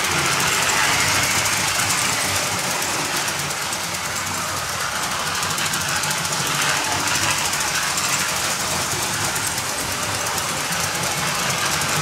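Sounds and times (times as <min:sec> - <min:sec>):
electric toy train motor whirring: 0:00.0 - 0:12.0
wheels clicking on track: 0:00.0 - 0:12.0.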